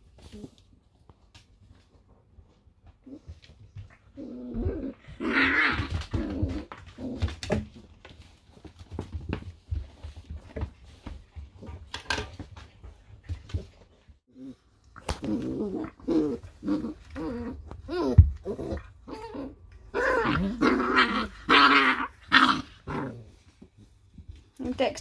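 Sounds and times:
paws scrabbling on metal floor: 0.0 - 14.2
puppies play-growling: 0.0 - 24.4.

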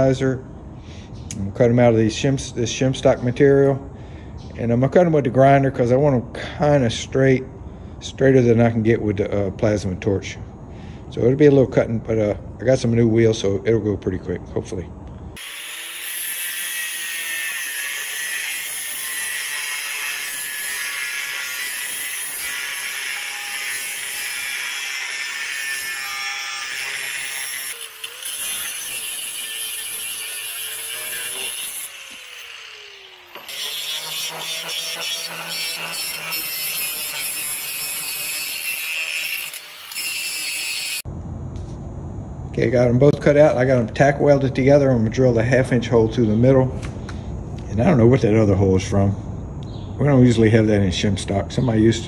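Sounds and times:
angle grinder cutting steel: 15.4 - 41.1.

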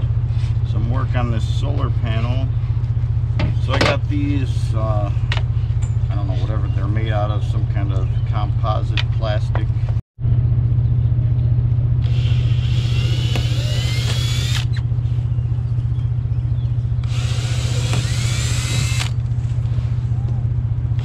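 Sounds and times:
steady low drone: 0.0 - 21.0
cordless drill boring plastic: 12.0 - 14.8, 17.0 - 19.2.

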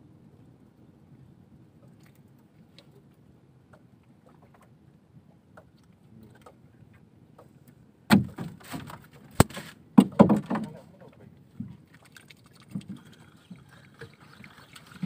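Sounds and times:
knocks and thumps on boat: 7.3 - 10.9, 11.5 - 11.9, 12.7 - 13.7.

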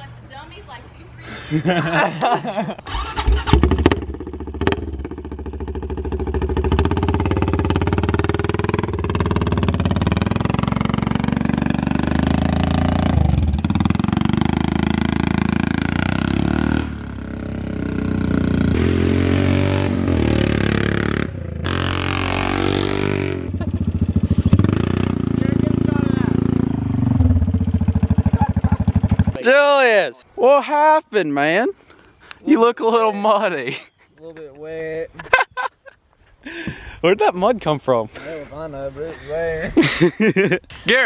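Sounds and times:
atv engine running under load: 2.9 - 29.4.

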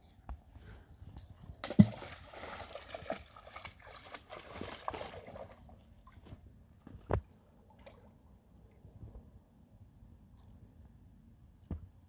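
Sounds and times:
water sloshing around dog's legs: 1.5 - 6.4.

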